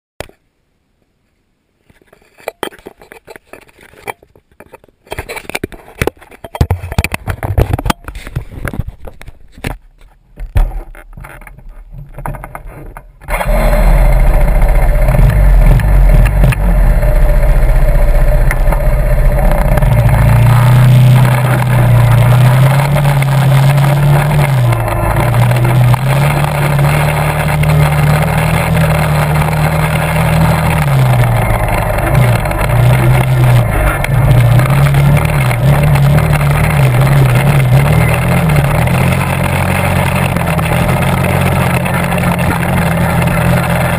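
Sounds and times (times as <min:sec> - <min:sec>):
scattered knocks and clicks: 0:02.0 - 0:13.3, 0:21.2 - 0:43.9
quad bike engine revving: 0:13.3 - 0:43.9.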